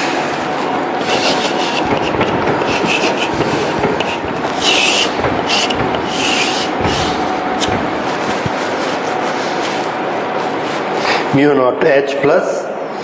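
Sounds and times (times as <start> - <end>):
chalk scratching on blackboard: 1.0 - 8.8.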